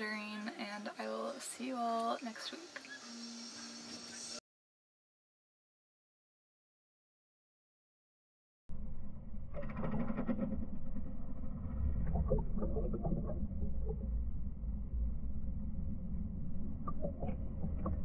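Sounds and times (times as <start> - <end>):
underwater low rumble: 8.7 - 18.0
short underwater crackles: 9.5 - 14.2.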